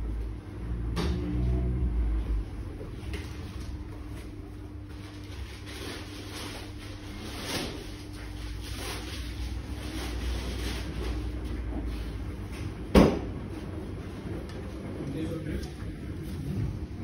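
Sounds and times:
washing machine hum and rumble: 0:00.0 - 0:17.0.

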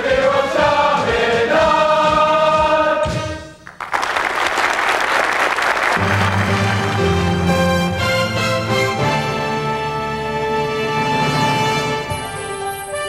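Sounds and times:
choir of young men singing: 0:00.0 - 0:03.5
audience applause: 0:03.7 - 0:08.0.

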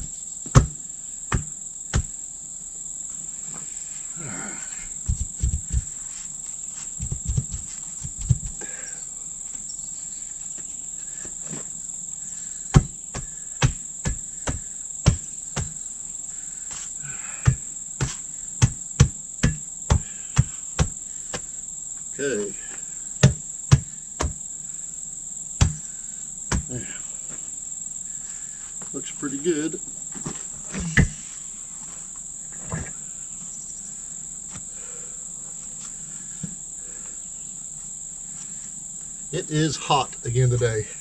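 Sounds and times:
dull thumps: 0:00.0 - 0:02.2, 0:05.0 - 0:06.1, 0:06.8 - 0:08.8, 0:12.7 - 0:15.8, 0:16.7 - 0:21.6, 0:23.2 - 0:24.4, 0:25.6 - 0:27.0, 0:30.2 - 0:31.2
insects droning: 0:00.0 - 0:41.0
hand tool knocking on tire: 0:00.5 - 0:02.1, 0:07.0 - 0:08.6, 0:12.8 - 0:15.8, 0:17.5 - 0:21.4, 0:23.2 - 0:24.4, 0:25.6 - 0:25.8, 0:26.5 - 0:26.7.

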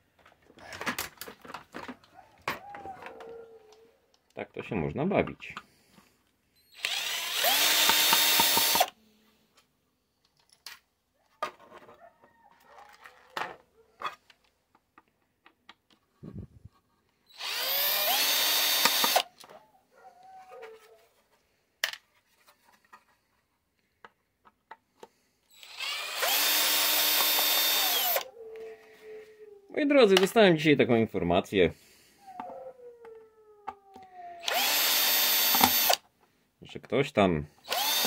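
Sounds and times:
cordless drill backing out screws: 0:06.8 - 0:08.9, 0:17.4 - 0:19.3, 0:25.6 - 0:28.3, 0:34.4 - 0:36.0, 0:37.6 - 0:38.0.

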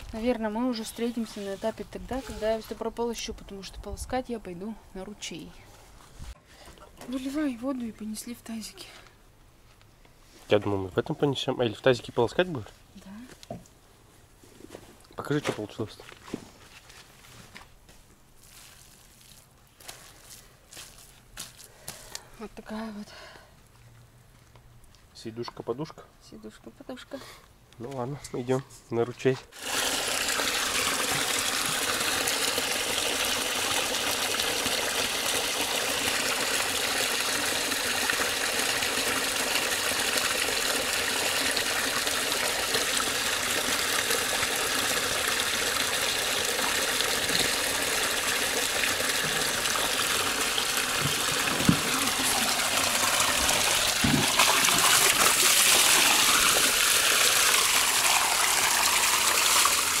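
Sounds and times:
water gushing from culvert pipe: 0:29.5 - 1:00.0
water splashing into metal basin: 0:29.5 - 1:00.0.

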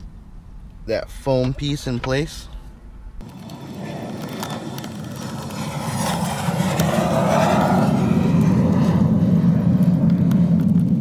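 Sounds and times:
motor vehicle rumble: 0:02.7 - 0:11.0.

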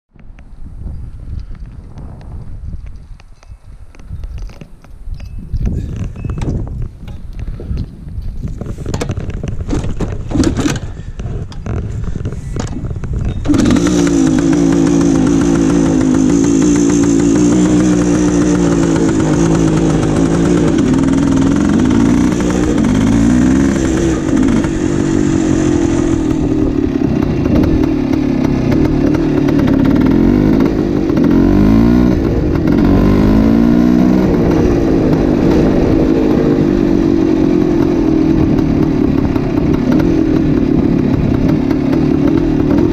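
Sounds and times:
motorcycle engine popping and revving: 0:01.2 - 0:42.9.

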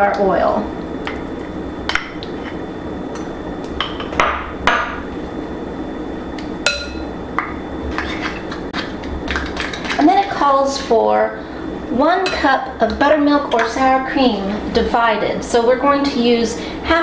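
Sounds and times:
steady low hum: 0:00.0 - 0:17.0
measuring cup scraping mixing bowl: 0:07.8 - 0:10.1.

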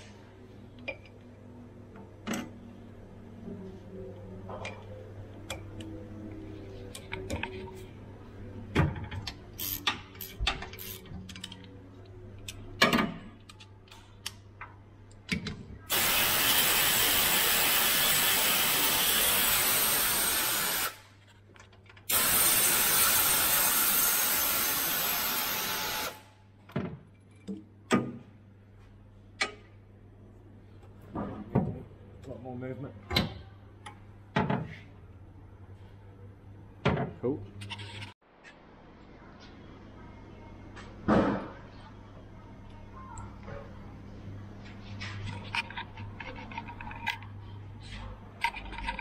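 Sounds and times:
pneumatic air ratchet whirring: 0:09.6 - 0:11.1, 0:15.9 - 0:21.0, 0:22.1 - 0:26.3.

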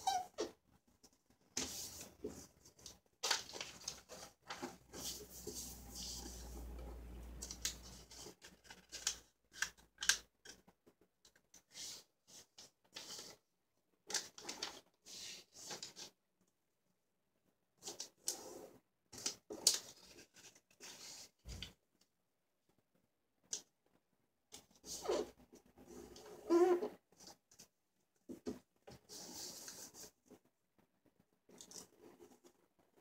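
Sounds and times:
paper rustling as it is folded: 0:01.5 - 0:06.7, 0:07.4 - 0:10.6, 0:11.4 - 0:16.2, 0:19.1 - 0:21.8.

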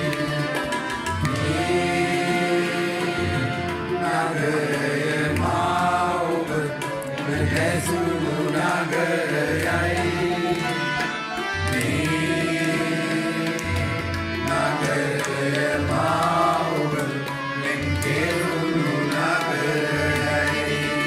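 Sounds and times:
person singing: 0:00.0 - 0:21.0.

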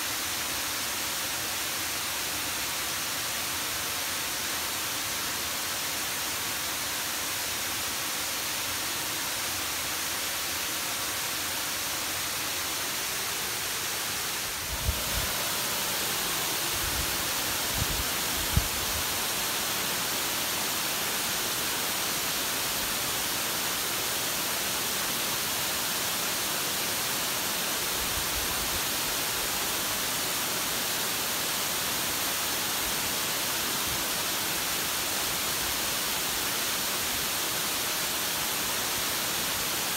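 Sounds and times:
water rushing down spillway: 0:09.4 - 0:39.9.

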